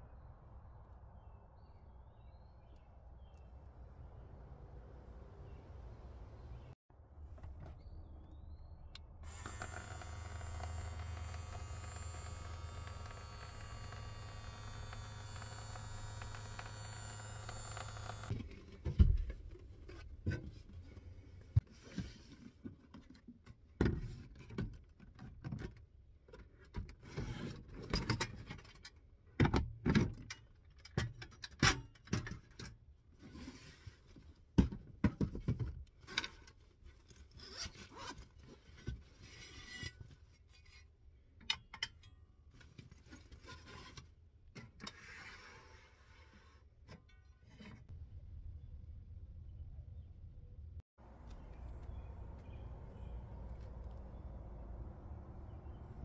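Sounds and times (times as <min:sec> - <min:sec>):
electric water pump humming: 0:09.2 - 0:18.4.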